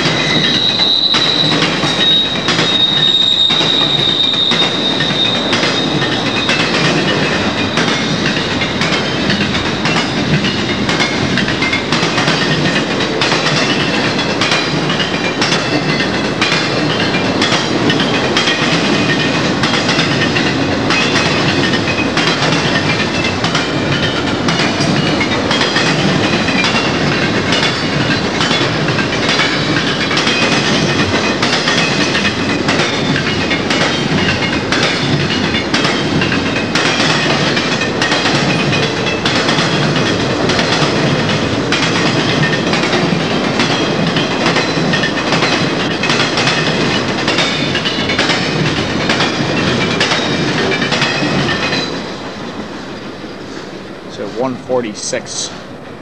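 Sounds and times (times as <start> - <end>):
high steady squeal: 0.0 - 6.9
train wheels rumbling on rail: 0.0 - 56.0.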